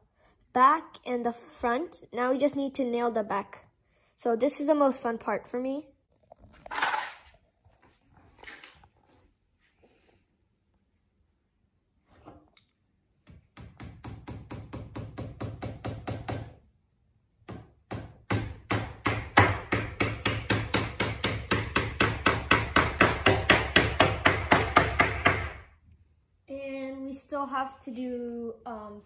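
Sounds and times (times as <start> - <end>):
hammer tapping nails: 13.3 - 16.6, 17.5 - 25.6.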